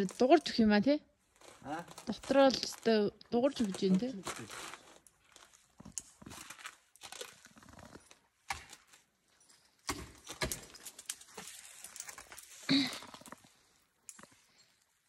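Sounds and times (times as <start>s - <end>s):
ice tools striking ice: 9.8s - 11.6s.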